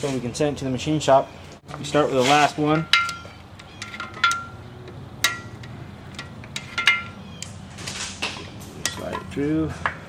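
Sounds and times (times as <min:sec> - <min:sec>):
metal bar clinking: 0:02.7 - 0:04.6, 0:05.2 - 0:07.2.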